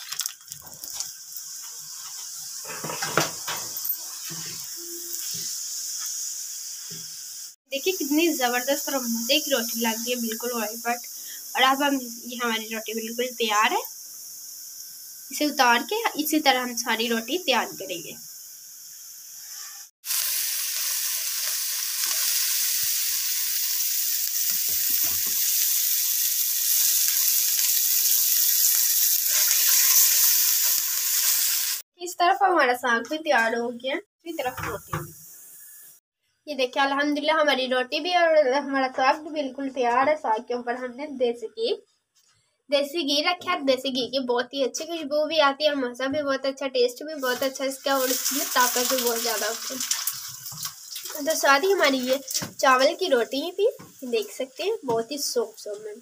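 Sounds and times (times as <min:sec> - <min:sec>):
oil sizzling in a pan: 0:00.0 - 0:31.9, 0:34.2 - 0:36.0, 0:47.0 - 0:56.0
knocks and scrapes against pan: 0:02.1 - 0:04.6.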